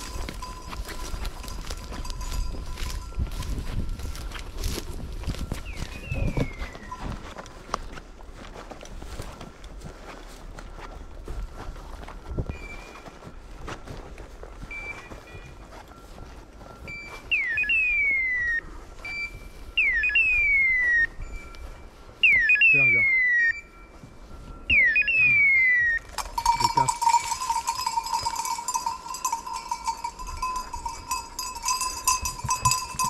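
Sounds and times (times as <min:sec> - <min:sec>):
dog bell jingling: 0:00.0 - 0:07.5, 0:26.1 - 0:33.0
shrill electronic collar calls: 0:16.9 - 0:18.6.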